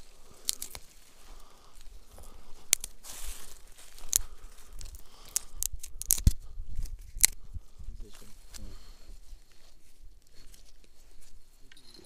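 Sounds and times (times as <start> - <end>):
twigs snapping: 0.0 - 7.6
twigs rustling: 0.0 - 11.8.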